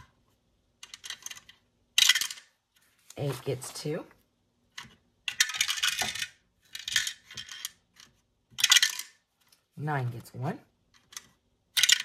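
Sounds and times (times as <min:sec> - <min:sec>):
die clattering in a box: 0:08.6 - 0:09.2.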